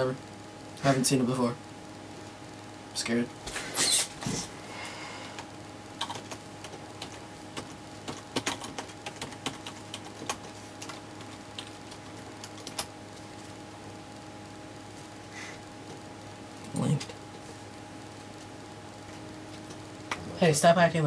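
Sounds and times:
steady low hum: 0:00.0 - 0:21.0
computer keyboard typing: 0:06.0 - 0:12.9.

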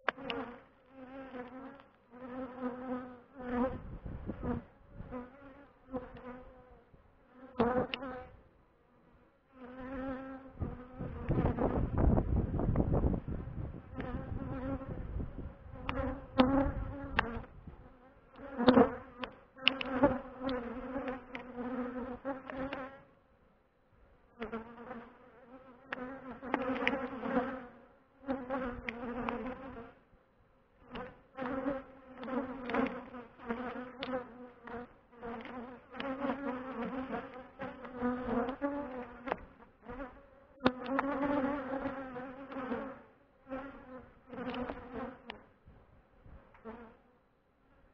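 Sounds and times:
bees buzzing: 0:00.1 - 0:08.4, 0:15.6 - 0:23.0, 0:24.4 - 0:30.0, 0:30.8 - 0:45.5.

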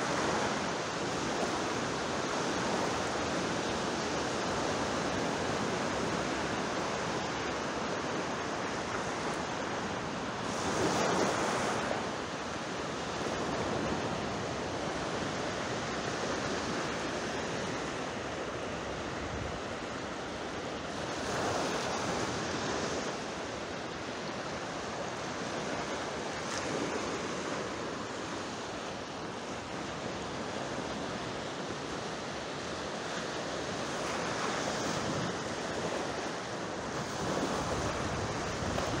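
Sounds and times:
wind on microphone: 0:00.0 - 0:23.3, 0:32.9 - 0:39.0
sea waves breaking: 0:00.0 - 0:39.0.

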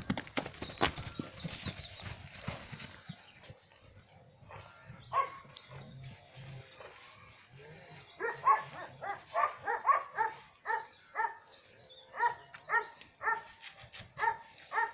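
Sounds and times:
dog barking: 0:04.5 - 0:05.4, 0:08.2 - 0:11.4, 0:12.1 - 0:13.5, 0:14.2 - 0:14.9.

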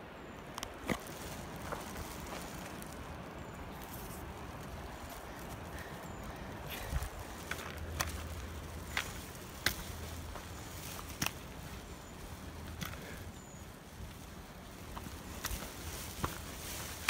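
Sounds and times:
footsteps on gravel: 0:00.6 - 0:17.0
trekking pole tips clicking: 0:06.7 - 0:10.4.

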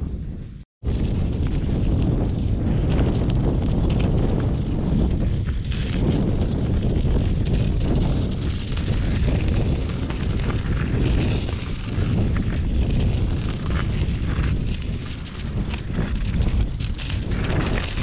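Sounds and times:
wind buffeting microphone: 0:00.0 - 0:18.0
bike clicks and rattles: 0:00.9 - 0:18.0.

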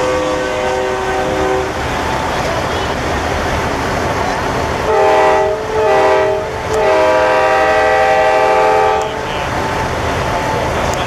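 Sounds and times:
truck air horn blasts: 0:00.0 - 0:01.8, 0:04.9 - 0:09.2
crowd noise: 0:00.7 - 0:11.0.

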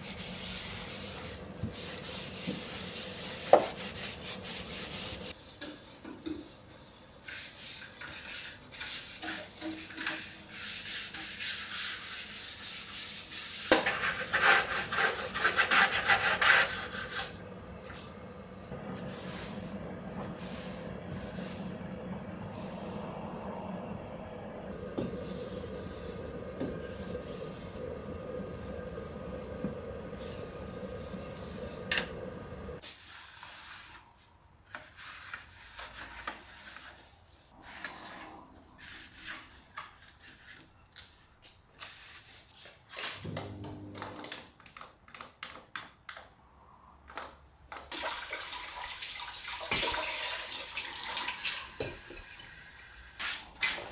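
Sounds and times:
cloth wiping glass door: 0:06.4 - 0:33.9
cloth scrubbing inside microwave: 0:11.6 - 0:32.8
low hum: 0:16.8 - 0:32.8
kitchen tap running: 0:47.9 - 0:53.2.

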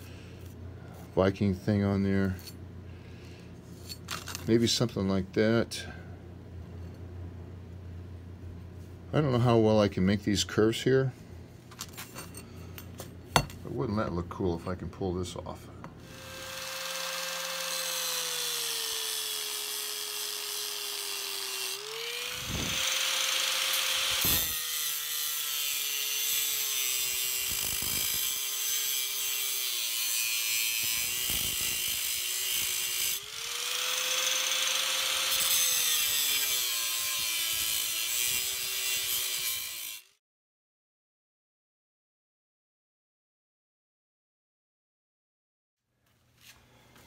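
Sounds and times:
angle grinder cutting steel: 0:16.0 - 0:40.2.

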